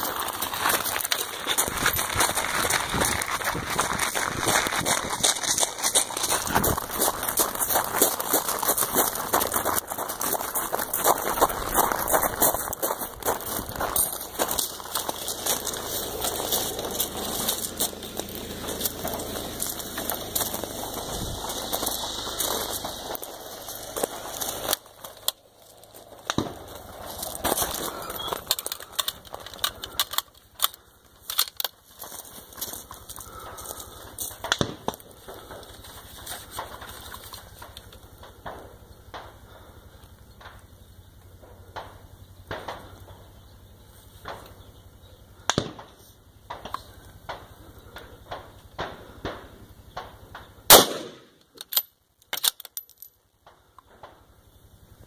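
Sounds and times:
rifle and gear clicking: 23.3s - 34.6s, 51.4s - 53.1s
rifle shot: 45.5s - 46.0s, 50.7s - 51.4s.

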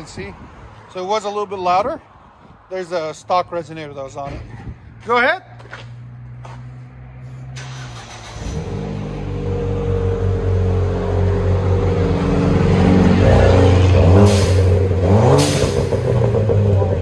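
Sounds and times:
car engine revving: 5.9s - 17.0s.

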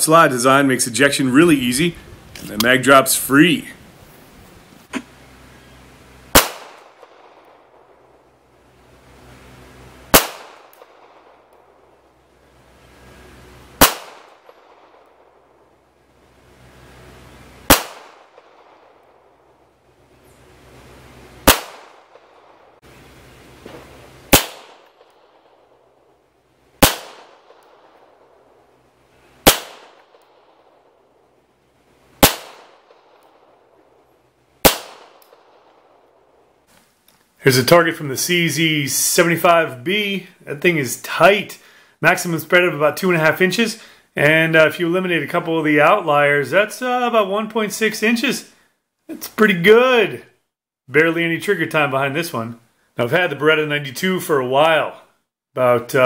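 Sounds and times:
pistol shots: 6.3s - 8.2s, 10.1s - 12.0s, 13.8s - 15.4s, 17.7s - 19.3s, 21.4s - 22.7s, 23.7s - 25.6s, 26.8s - 28.2s, 29.4s - 31.0s, 32.2s - 33.5s, 34.6s - 36.1s.

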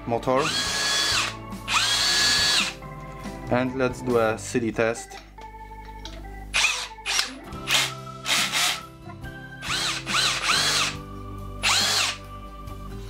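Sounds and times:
cordless drill whine: 0.4s - 2.8s, 6.6s - 8.8s, 9.6s - 11.0s, 11.6s - 12.2s.

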